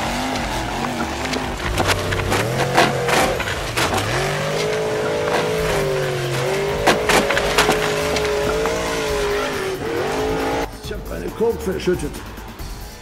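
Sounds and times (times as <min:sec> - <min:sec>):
wooden planks clattering down: 0:00.0 - 0:10.1
rc buggy engine drone: 0:00.0 - 0:13.0.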